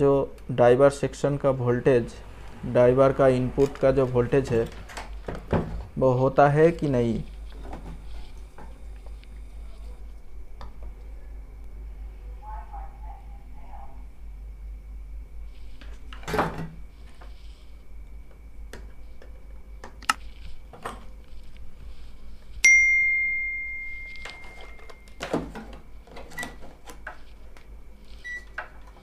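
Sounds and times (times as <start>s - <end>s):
metallic ding: 22.6s - 25.0s
faint high tone: 22.6s - 25.2s.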